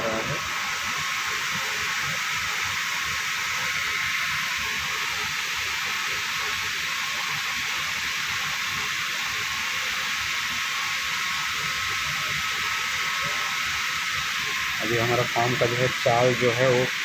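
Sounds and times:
steady background hiss: 0:09.3 - 0:17.0.

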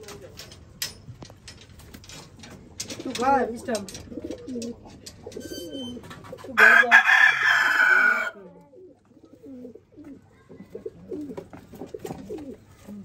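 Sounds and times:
pigeons cooing: 0:02.7 - 0:13.0
rooster crowing: 0:06.6 - 0:08.5.

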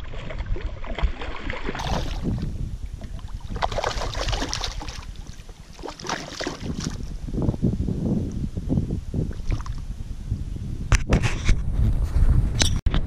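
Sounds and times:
fish splashing in water: 0:00.0 - 0:07.1.

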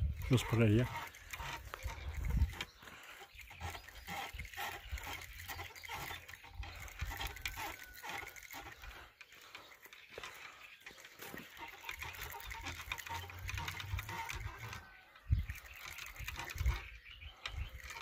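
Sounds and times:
rhythmic animal calls: 0:00.1 - 0:18.0.

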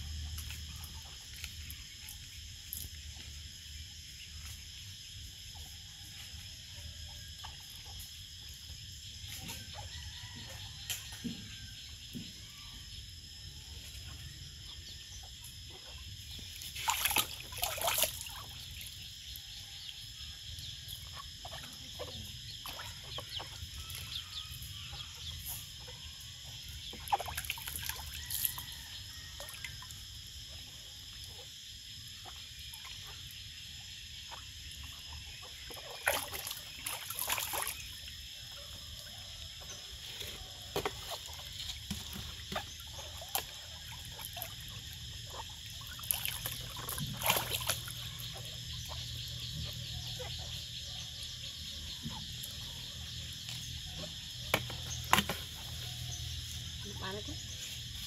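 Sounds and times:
water splashing in plastic tub: 0:16.4 - 0:19.0, 0:21.5 - 0:24.1, 0:26.9 - 0:28.6, 0:35.6 - 0:38.1, 0:40.6 - 0:48.4.

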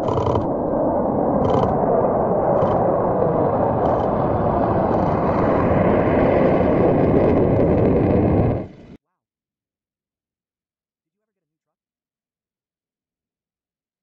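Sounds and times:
jet engines rushing overhead: 0:00.0 - 0:09.0.

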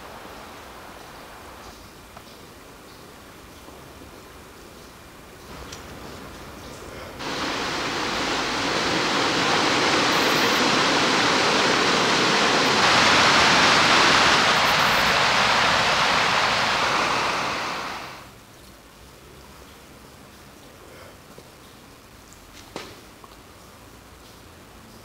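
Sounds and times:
water rushing: 0:00.0 - 0:01.7, 0:05.4 - 0:18.4.

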